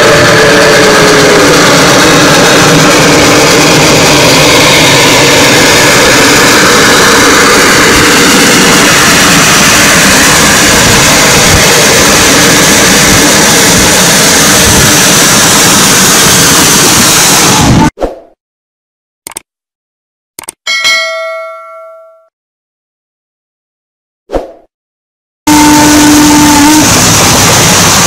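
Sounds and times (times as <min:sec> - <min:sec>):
steam locomotive exhaust roar: 0:00.0 - 0:17.9, 0:25.5 - 0:28.0
steam whistle blast: 0:25.5 - 0:27.5.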